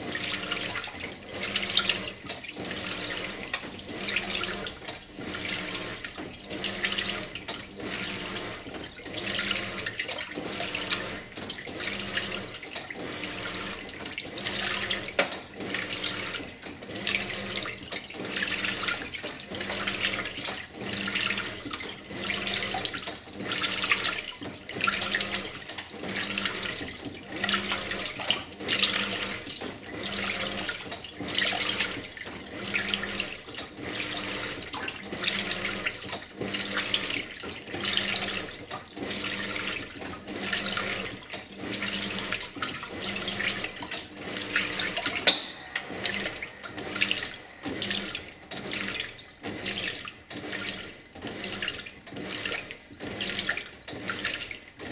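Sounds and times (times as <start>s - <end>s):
washing machine sloshing water: 0.0s - 54.9s.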